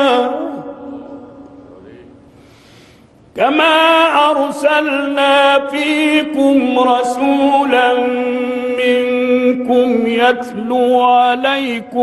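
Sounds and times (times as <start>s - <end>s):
man chanting melodic recitation: 3.4s - 12.0s.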